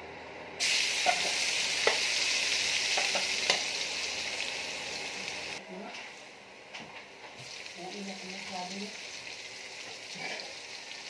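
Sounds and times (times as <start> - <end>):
garlic sizzling in hot oil: 0.6 - 5.6, 7.4 - 11.0.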